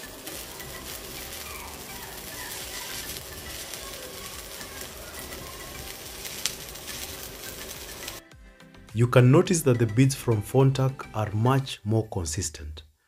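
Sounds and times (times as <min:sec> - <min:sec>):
welding arc crackling hiss: 0:00.0 - 0:08.2.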